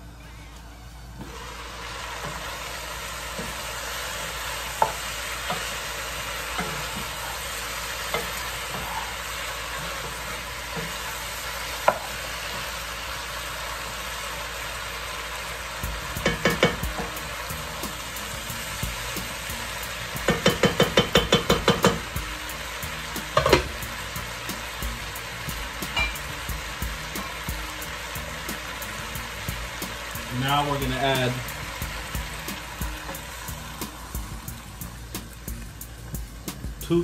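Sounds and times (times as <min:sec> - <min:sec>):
vegetables sizzling in pan: 0:01.2 - 0:37.0
wooden spoon knocking pan: 0:16.2 - 0:17.1, 0:20.2 - 0:22.1, 0:23.3 - 0:23.8.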